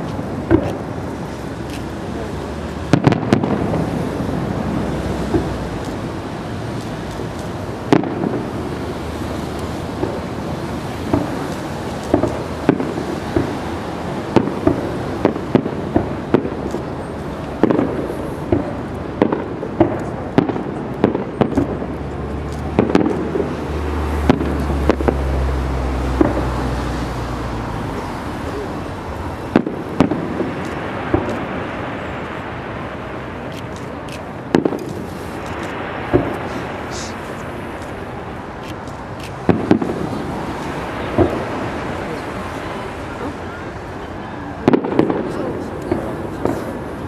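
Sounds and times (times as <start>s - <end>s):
steady background noise: 0.0s - 47.0s
firework shells bursting: 9.5s - 25.5s, 33.4s - 38.0s.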